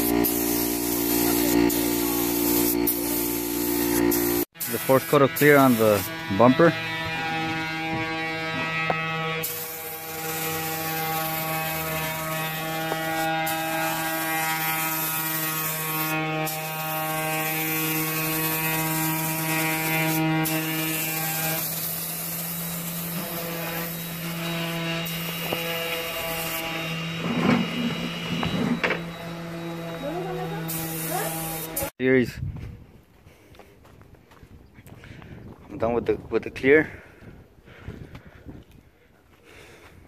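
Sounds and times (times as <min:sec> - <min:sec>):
spray gun hissing: 0:00.0 - 0:06.1, 0:09.4 - 0:26.7, 0:29.9 - 0:31.9
air compressor humming: 0:00.0 - 0:31.9.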